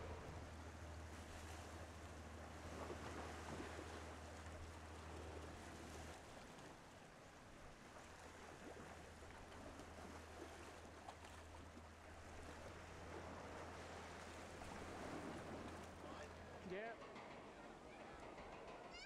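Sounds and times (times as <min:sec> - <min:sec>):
steady low hum: 0:00.0 - 0:05.4
gentle water movement: 0:00.0 - 0:18.2.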